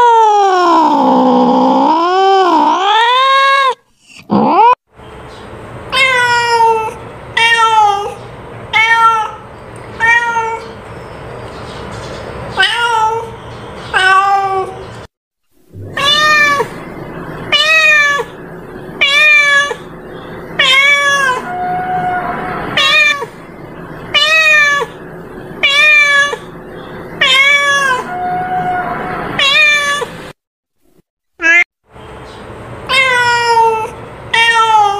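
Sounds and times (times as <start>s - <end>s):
cat meowing: 5.9s - 10.8s, 12.6s - 14.8s, 15.8s - 18.4s, 19.0s - 19.9s, 20.6s - 23.4s, 24.1s - 25.0s, 25.6s - 26.5s, 27.1s - 30.2s, 31.4s - 31.6s, 32.9s - 34.9s.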